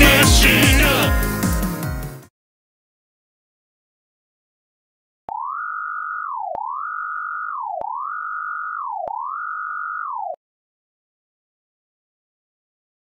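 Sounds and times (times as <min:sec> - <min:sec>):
rising and falling electronic tone: 0:05.3 - 0:10.4.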